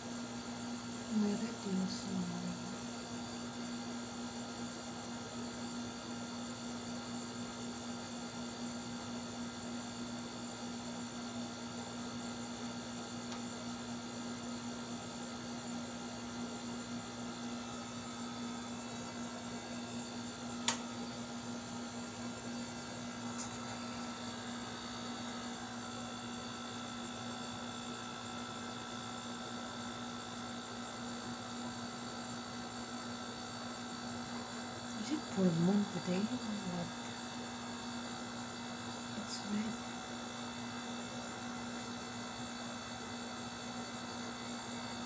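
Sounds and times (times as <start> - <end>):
electrical hum: 0.0 - 45.0
sharp click: 20.6 - 20.9.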